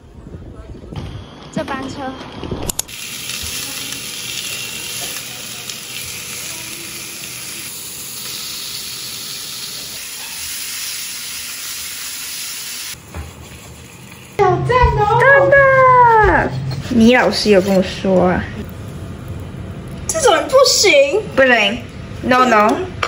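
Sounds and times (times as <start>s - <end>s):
steaks sizzling in a frying pan: 2.9s - 14.4s.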